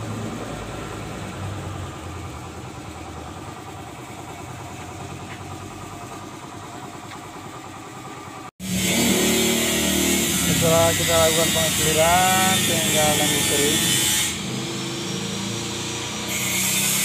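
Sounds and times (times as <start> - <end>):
motor running with rhythmic throb: 0.0 - 17.0
loud hissing with hum: 8.6 - 13.8.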